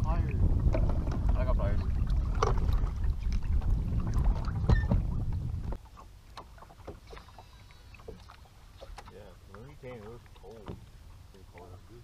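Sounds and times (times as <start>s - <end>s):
boat engine rumbling: 0.0s - 12.0s
clicks and knocks on boat: 0.6s - 1.5s, 8.0s - 10.9s.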